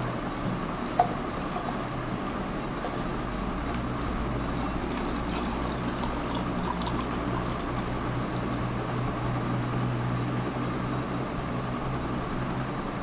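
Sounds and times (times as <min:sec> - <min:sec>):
steady background hum: 0:00.0 - 0:13.0
milk pouring into a plastic jug: 0:04.5 - 0:08.4.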